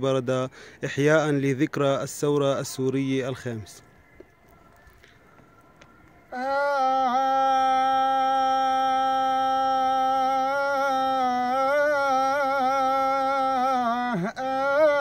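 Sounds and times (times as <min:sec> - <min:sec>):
man singing a long note: 0:06.3 - 0:15.0.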